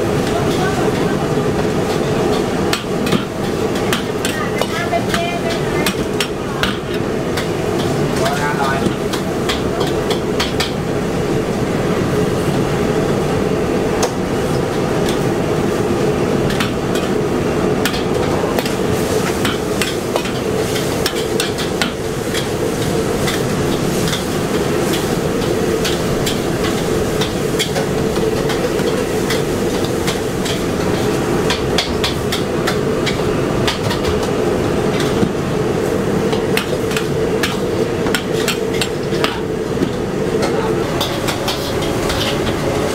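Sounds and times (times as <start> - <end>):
gas burner rushing: 0.0 - 42.9.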